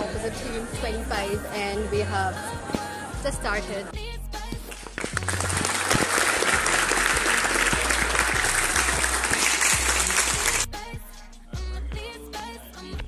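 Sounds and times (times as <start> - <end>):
music with singing: 0.0 - 13.0
audience applauding: 4.7 - 10.7.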